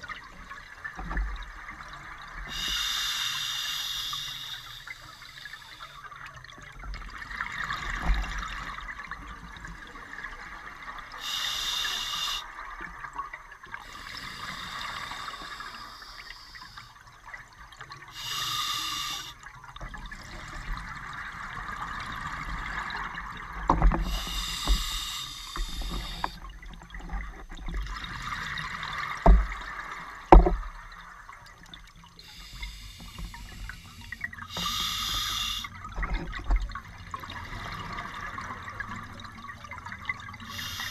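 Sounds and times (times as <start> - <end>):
diver inhaling through regulator: 2.5 - 6.0, 11.2 - 12.5, 13.8 - 17.0, 18.1 - 19.4, 24.0 - 26.4, 32.2 - 35.7, 40.5 - 40.9.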